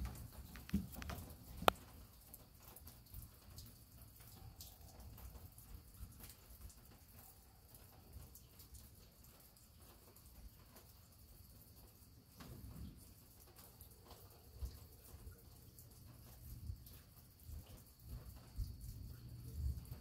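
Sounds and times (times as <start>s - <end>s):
light ticks: 0.0s - 2.0s
low steady hiss: 0.0s - 20.0s.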